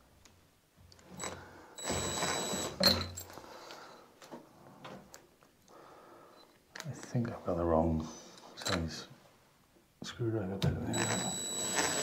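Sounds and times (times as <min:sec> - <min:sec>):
cordless drill whining: 0:01.2 - 0:03.1, 0:10.9 - 0:12.0.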